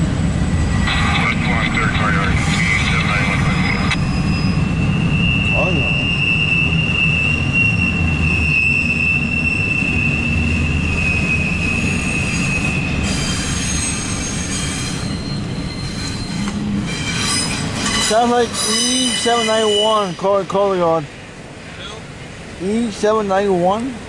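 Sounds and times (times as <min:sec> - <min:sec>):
train wheels rumbling on rails: 0:00.0 - 0:24.0
high wheel squeal: 0:02.0 - 0:20.5.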